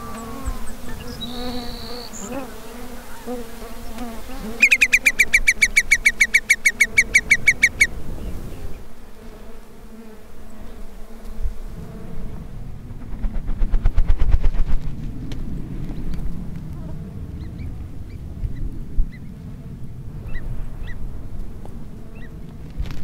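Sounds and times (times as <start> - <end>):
whimbrel calling: 0.0 - 2.3, 4.6 - 7.9
faint rapid pulsing: 12.3 - 15.0.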